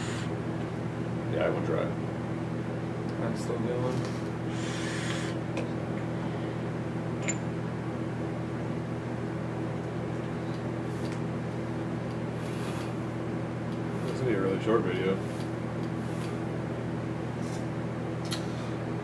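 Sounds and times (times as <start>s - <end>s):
fan humming: 0.0s - 19.0s
breathy hiss of vapour exhaled: 4.5s - 5.4s.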